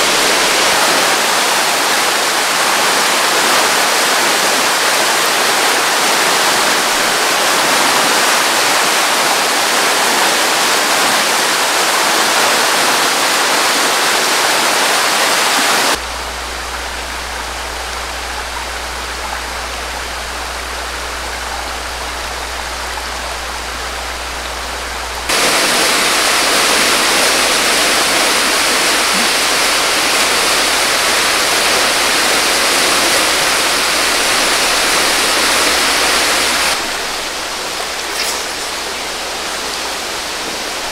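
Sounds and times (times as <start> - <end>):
floodwater rushing in a creek: 0.0 - 40.9
low hum: 16.0 - 40.9.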